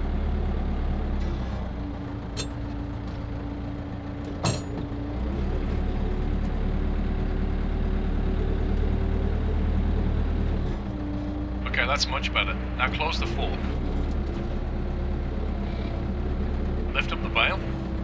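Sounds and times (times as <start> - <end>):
tractor diesel engine running: 0.0 - 18.0
sharp clunk: 4.4 - 4.9.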